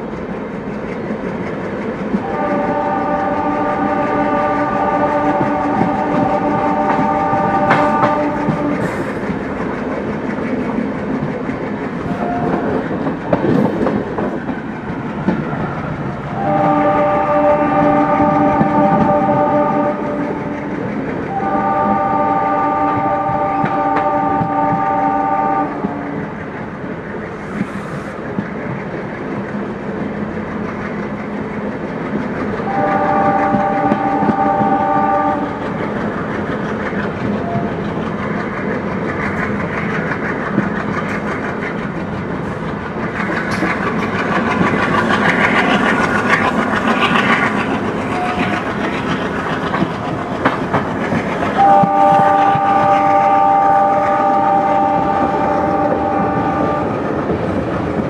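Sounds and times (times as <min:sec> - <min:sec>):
train wheels clickety-clack: 0:00.0 - 0:58.0
locomotive air horn: 0:02.2 - 0:09.0, 0:12.1 - 0:12.8, 0:15.5 - 0:20.6, 0:21.3 - 0:26.2, 0:32.7 - 0:35.6, 0:37.4 - 0:37.8, 0:48.1 - 0:48.7, 0:51.5 - 0:57.1.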